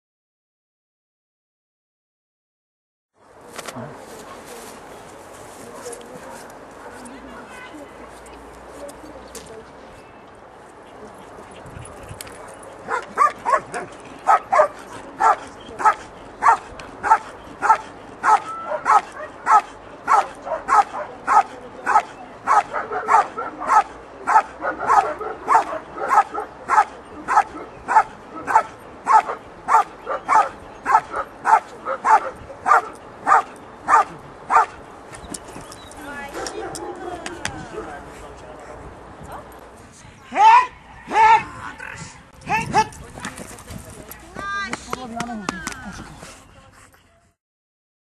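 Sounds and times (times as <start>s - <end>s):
dog barking rhythmically: 12.8s - 34.8s.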